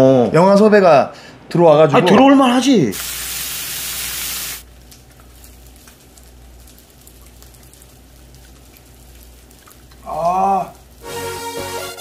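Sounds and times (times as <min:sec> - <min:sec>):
meat frying on grill pan: 0:02.9 - 0:12.0.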